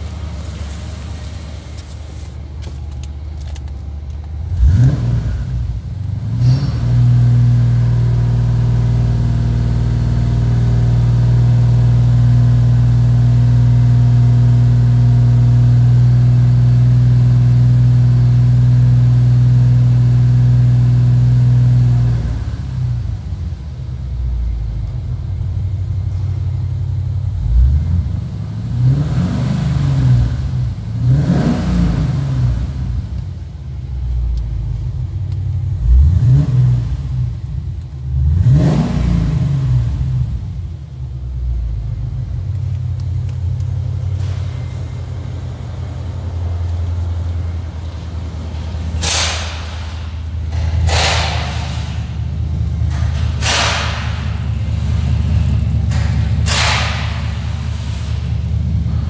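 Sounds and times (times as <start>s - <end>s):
car engine revving: 4.4s - 11.1s, 27.3s - 33.3s, 35.4s - 40.6s, 42.5s - 59.0s.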